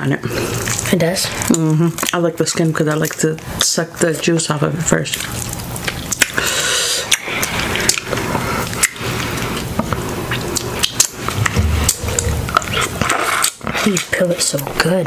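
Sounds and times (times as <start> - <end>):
chewing: 0.2 - 3.7, 5.1 - 14.8
shrimp squishing in sauce: 0.4 - 3.6, 5.1 - 14.0
lips sucking juice: 6.1 - 14.0.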